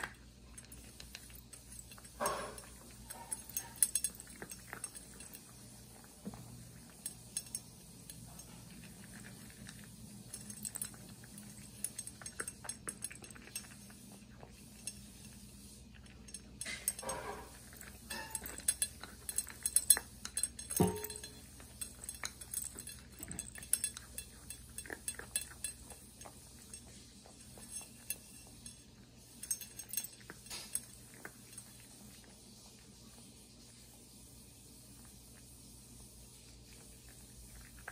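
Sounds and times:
cat chewing and licking: 0:00.0 - 0:37.9
clinks against metal bowl: 0:01.9 - 0:05.4, 0:16.2 - 0:31.3.

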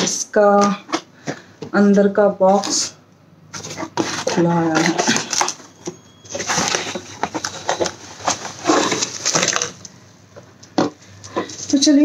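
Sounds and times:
cardboard rustling: 0:02.4 - 0:02.9, 0:03.5 - 0:09.9
bubble wrap crinkling: 0:03.6 - 0:09.9.

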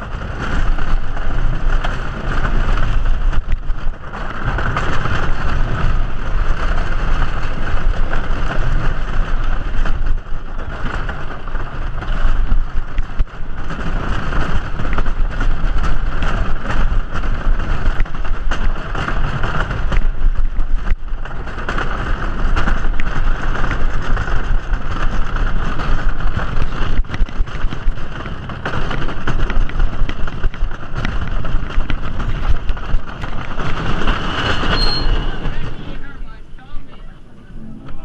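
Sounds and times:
roller coaster wheels rumbling: 0:00.0 - 0:38.0
high squeal: 0:34.5 - 0:35.5.

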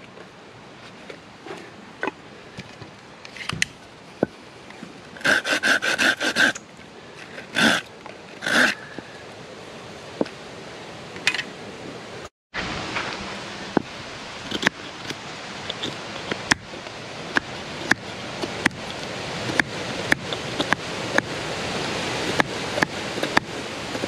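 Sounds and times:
hand saw rasping through wood: 0:05.2 - 0:06.6, 0:07.4 - 0:08.8, 0:17.4 - 0:21.4, 0:22.1 - 0:24.0.

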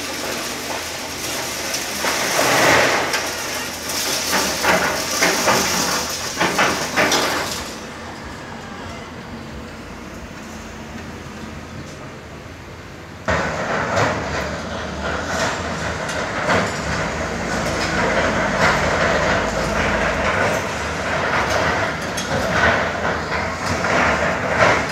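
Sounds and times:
concrete rubble crunching: 0:00.0 - 0:08.0, 0:13.6 - 0:24.9
excavator engine running: 0:00.0 - 0:24.9.

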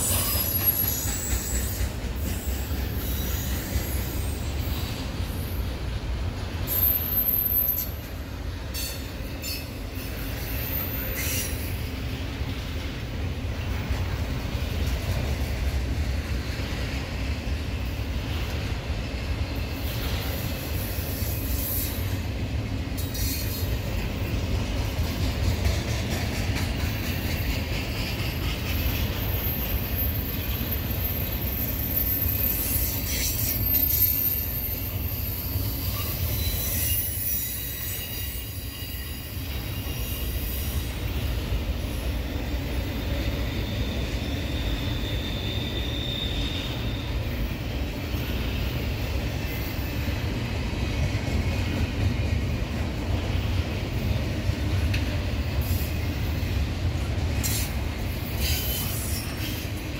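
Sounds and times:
high-pitched wheel squeal: 0:00.0 - 0:05.5, 0:28.0 - 0:41.2, 0:42.8 - 0:47.5
freight train rumbling past: 0:00.0 - 0:59.9.

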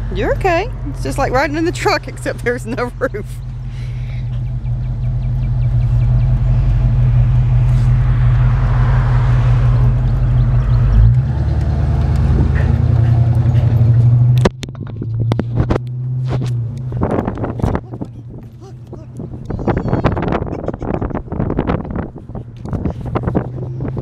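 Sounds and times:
engine and road drone: 0:00.0 - 0:24.0
wind: 0:00.0 - 0:24.0
sharp clicks and knocks: 0:12.9 - 0:19.6.

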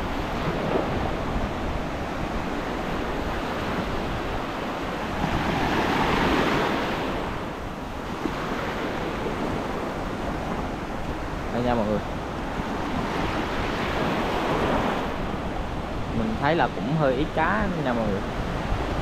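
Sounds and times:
sea waves washing onto beach: 0:00.0 - 0:19.0.

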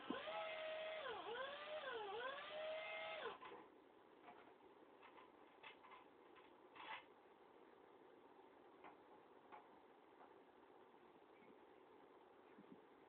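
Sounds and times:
cordless drill motor whining: 0:00.0 - 0:03.4.

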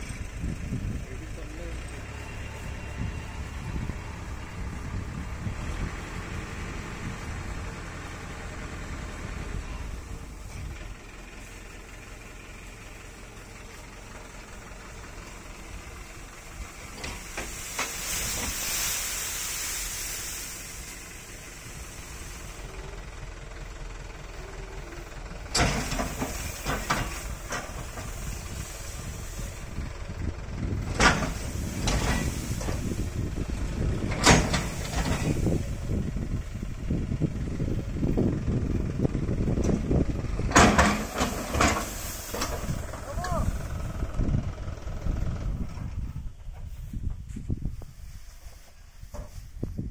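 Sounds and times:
tractor engine running: 0:00.0 - 0:49.9
knocks and crackles of sliding load: 0:12.7 - 0:22.6, 0:25.2 - 0:35.9, 0:39.6 - 0:44.0
hissing rush: 0:14.6 - 0:23.1, 0:24.4 - 0:30.2, 0:30.8 - 0:35.9, 0:40.8 - 0:44.0.

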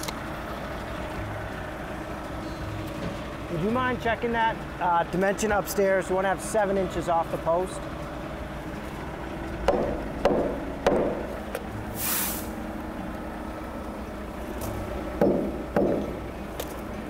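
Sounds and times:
hammer knocking on wood: 0:09.7 - 0:11.3, 0:15.2 - 0:16.2
short hiss: 0:11.9 - 0:12.6.

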